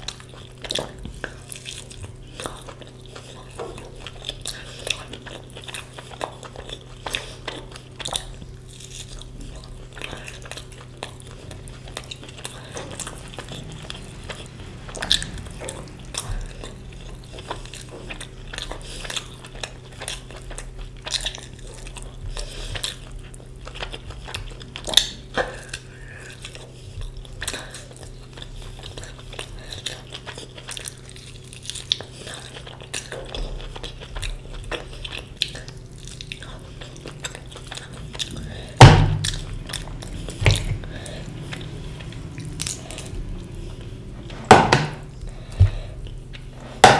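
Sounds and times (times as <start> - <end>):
chewing: 0.0 - 46.9
sharp knocks: 44.4 - 45.0.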